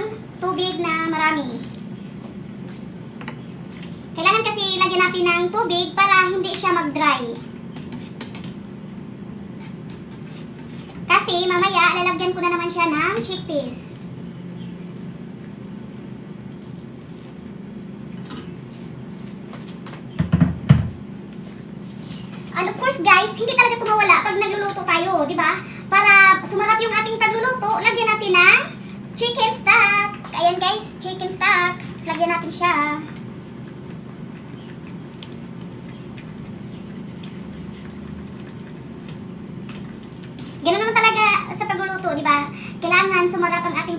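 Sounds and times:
steady low hum: 0.0s - 43.9s
sauce simmering and bubbling: 14.1s - 19.1s, 30.6s - 41.5s
loud thumps and knocks: 20.2s - 21.0s.

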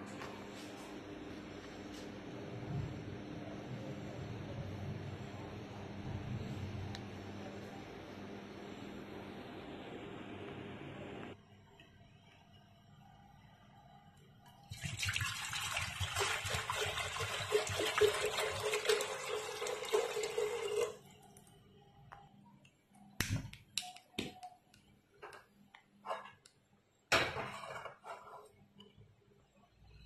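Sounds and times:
water poured into metal pot: 14.7s - 21.0s.

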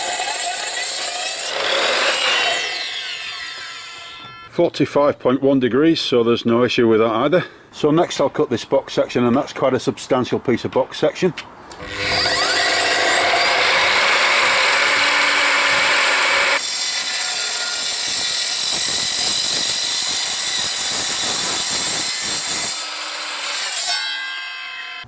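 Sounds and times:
mitre saw cutting steel: 0.0s - 4.5s, 11.8s - 25.0s.

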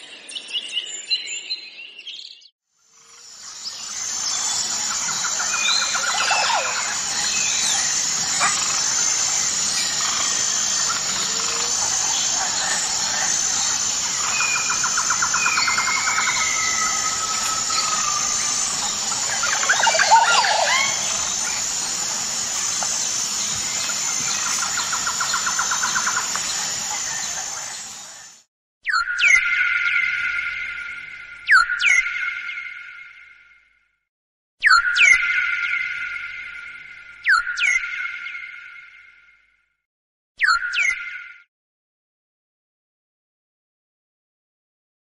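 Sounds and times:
birds calling and whistling: 0.0s - 2.5s, 3.3s - 33.4s, 34.6s - 39.3s, 40.4s - 41.4s
pulsing insect buzz: 6.7s - 28.3s.

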